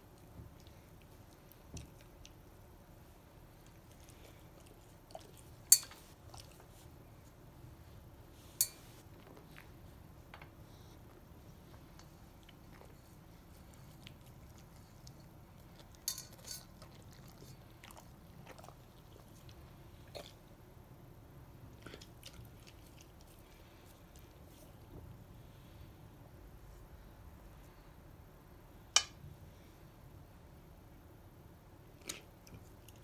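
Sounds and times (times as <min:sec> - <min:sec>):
dog chewing food: 0:11.8 - 0:20.4, 0:21.8 - 0:24.4.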